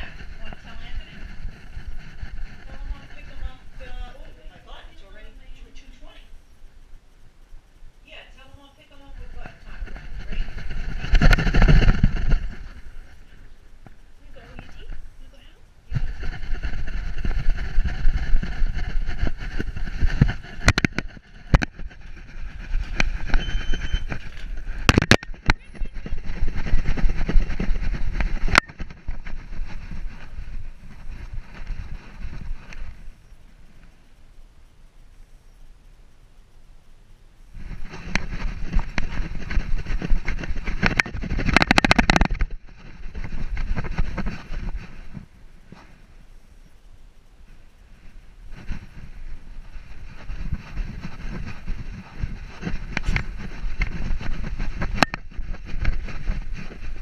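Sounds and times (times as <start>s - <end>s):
camera handling rumble and rubbing: 0.0s - 5.3s, 9.1s - 15.2s, 15.9s - 33.2s, 37.6s - 46.0s, 48.0s - 57.0s
fur and strap brushing: 0.0s - 6.2s, 8.9s - 33.2s, 37.6s - 46.1s, 47.4s - 57.0s
rapid clicks: 8.4s - 33.0s, 37.6s - 45.3s
camera harness knocking and rattling: 20.6s - 22.0s, 40.3s - 42.5s.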